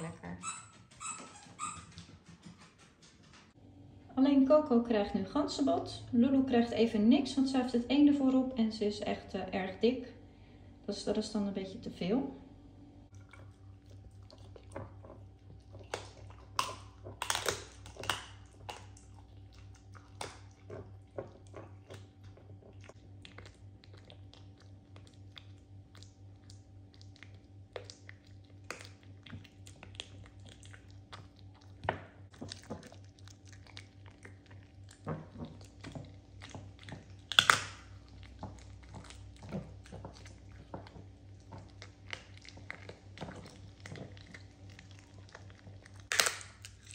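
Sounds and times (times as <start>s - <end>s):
dog chewing and crunching bone: 13.1s - 46.9s.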